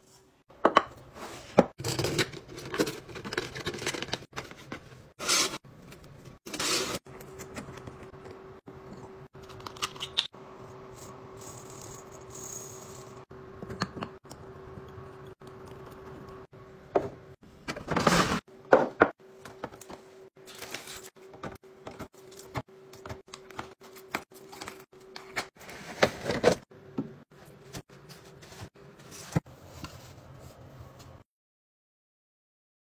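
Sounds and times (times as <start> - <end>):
kitchen items clinking and rattling: 0.6 - 8.4.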